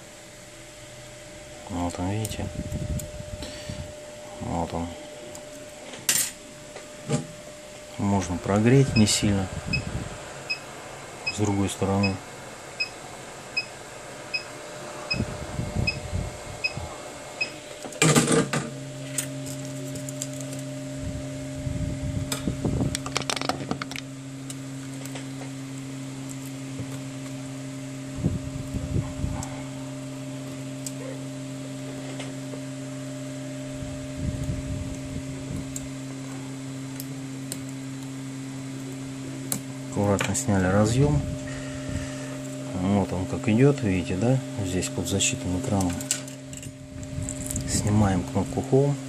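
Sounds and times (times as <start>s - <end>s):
hot air gun humming: 34.9s - 46.6s.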